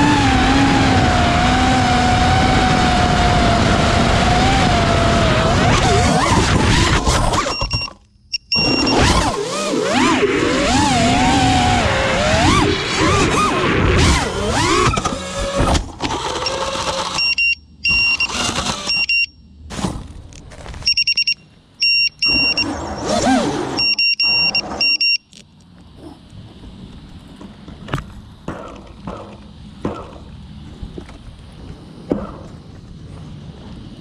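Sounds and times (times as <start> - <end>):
quadcopter motors whining: 0.0 - 19.3, 20.9 - 34.0
short high electronic beeps: 7.4 - 9.2, 20.9 - 25.3.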